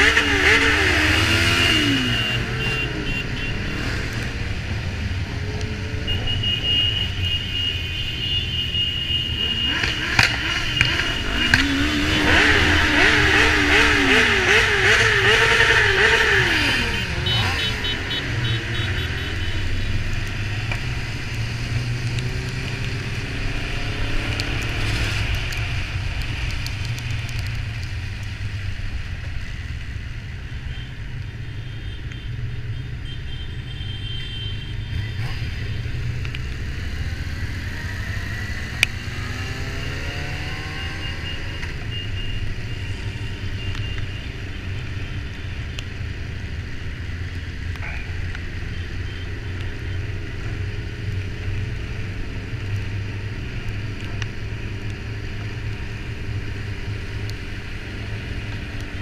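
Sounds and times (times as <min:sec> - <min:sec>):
motorcycle engine rumbling: 0:00.0 - 0:30.7.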